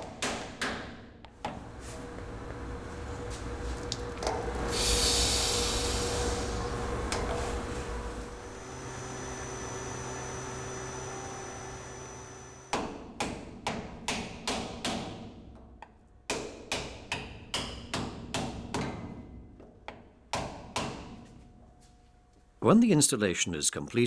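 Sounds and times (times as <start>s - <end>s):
steady hum: 1.5s - 12.8s
hammer striking wood: 12.7s - 15.3s, 16.3s - 19.0s, 19.9s - 21.2s.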